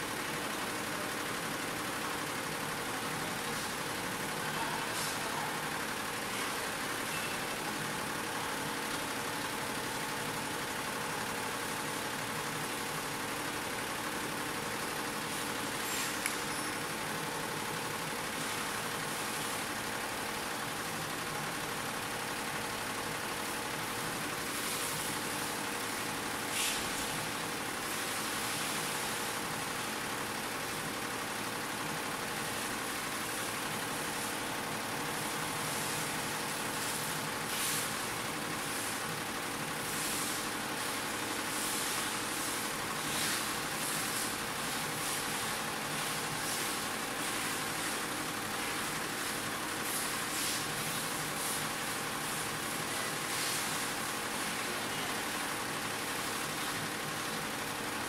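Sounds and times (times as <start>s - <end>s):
short hiss: 26.5s - 27.1s.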